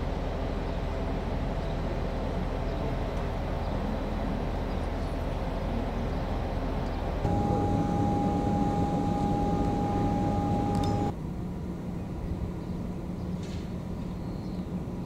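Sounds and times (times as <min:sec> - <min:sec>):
low machine hum: 0:00.1 - 0:11.2
rushing background noise: 0:07.2 - 0:11.1.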